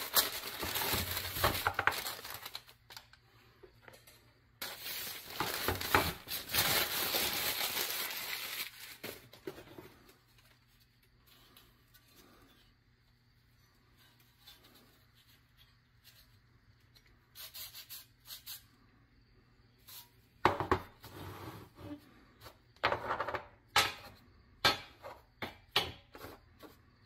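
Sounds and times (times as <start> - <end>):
faint rubbing of metal toy: 10.4 - 18.9.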